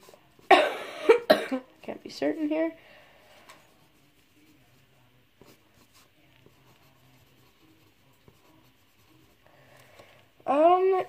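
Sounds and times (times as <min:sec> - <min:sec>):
pen scratching on paper: 0:05.4 - 0:09.4.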